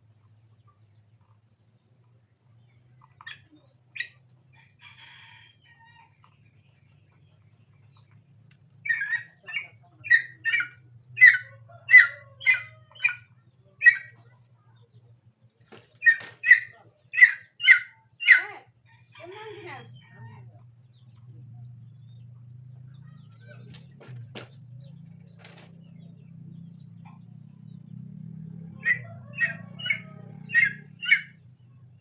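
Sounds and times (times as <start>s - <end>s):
junglefowl calling: 8.8s - 14.3s, 15.8s - 20.4s, 28.7s - 31.4s.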